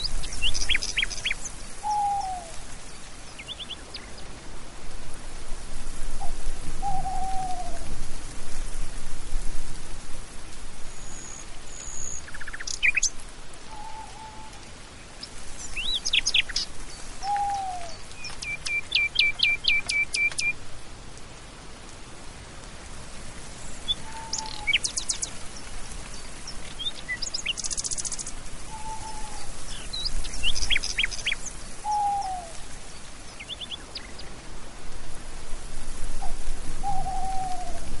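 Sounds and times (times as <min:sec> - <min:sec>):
birds chirping and trilling: 0:00.0 - 0:02.5, 0:11.0 - 0:13.1, 0:15.6 - 0:20.5, 0:23.7 - 0:32.4
steady background hiss: 0:00.0 - 0:38.0.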